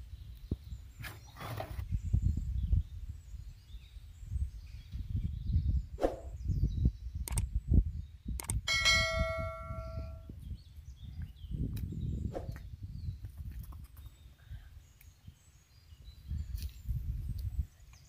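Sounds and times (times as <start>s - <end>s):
sharp clicks: 7.2s - 7.5s, 8.4s - 8.6s
bell ding: 8.7s - 10.2s.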